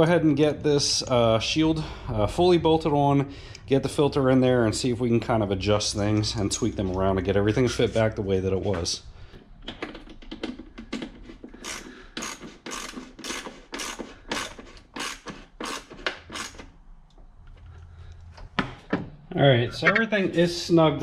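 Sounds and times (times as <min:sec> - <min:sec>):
ratchet wrench clicking: 0:11.6 - 0:16.7.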